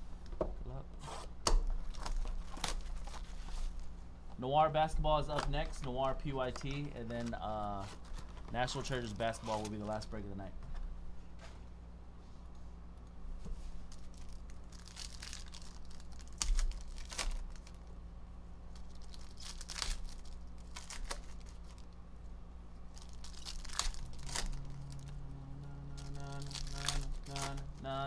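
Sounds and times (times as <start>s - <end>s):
foil wrappers tearing and crinkling: 1.8s - 3.9s, 5.2s - 10.1s, 13.9s - 17.9s, 18.7s - 22.0s, 22.9s - 25.2s, 25.9s - 28.0s.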